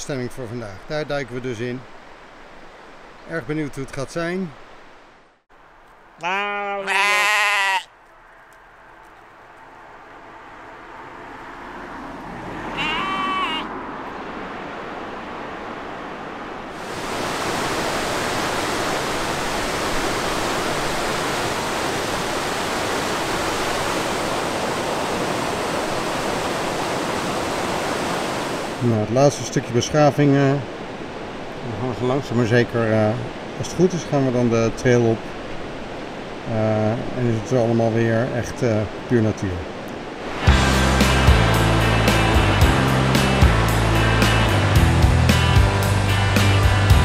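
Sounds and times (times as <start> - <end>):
rushing water: 0.0 - 7.9, 9.3 - 47.0
sheep bleating: 6.2 - 8.0, 12.8 - 13.7
waterfall rushing: 16.6 - 34.4, 39.6 - 47.0.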